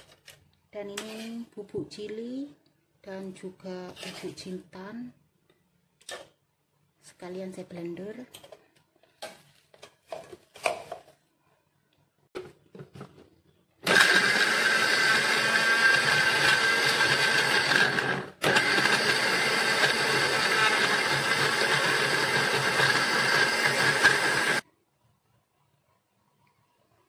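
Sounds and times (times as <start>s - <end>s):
blender motor whining: 13.8s - 24.6s.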